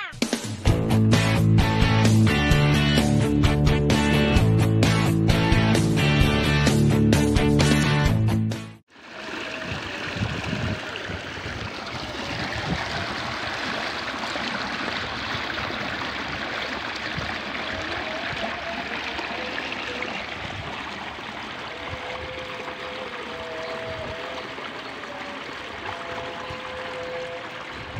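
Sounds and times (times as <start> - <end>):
water rushing down channel: 8.9 - 27.9.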